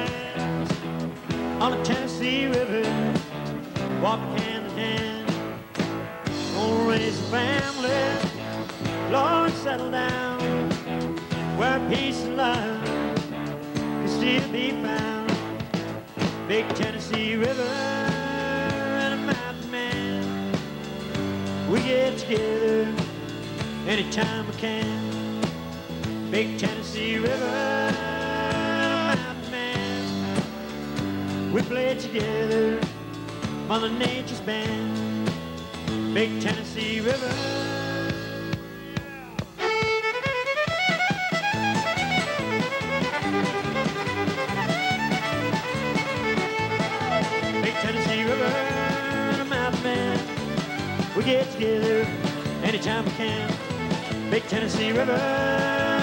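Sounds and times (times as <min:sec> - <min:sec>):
electric bass: 0:00.0 - 0:39.6, 0:41.3 - 0:56.0
drums: 0:00.0 - 0:56.0
sliding lead notes: 0:00.0 - 0:56.0
strummed acoustic guitar: 0:00.0 - 0:56.0
sliding fiddle line: 0:39.6 - 0:56.0.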